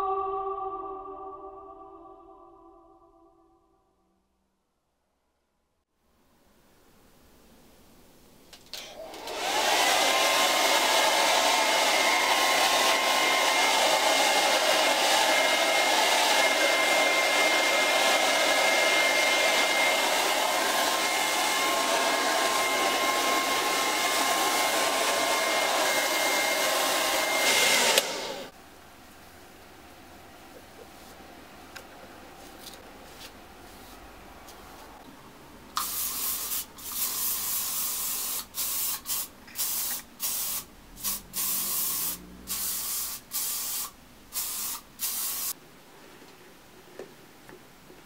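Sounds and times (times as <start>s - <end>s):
hair dryer running: 8.8s - 28.5s, 39.9s - 44.0s.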